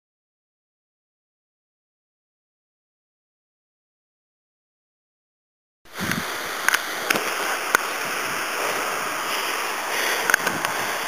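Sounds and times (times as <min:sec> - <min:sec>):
waterfall rushing: 0:05.9 - 0:11.0.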